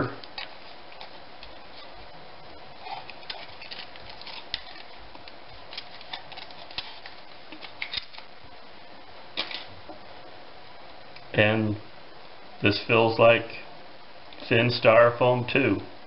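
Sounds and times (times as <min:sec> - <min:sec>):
aluminium foil crinkling: 0:00.2 - 0:02.0, 0:02.7 - 0:08.4, 0:09.4 - 0:09.7.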